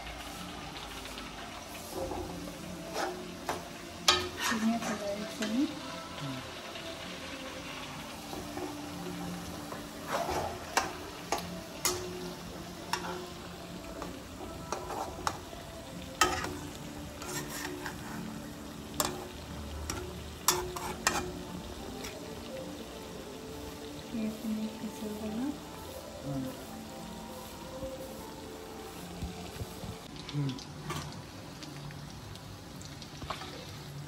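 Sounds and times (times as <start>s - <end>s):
food sizzling in a pan: 0.0s - 34.0s
spatula scraping a pan: 1.7s - 5.5s, 9.6s - 15.6s, 16.2s - 22.3s.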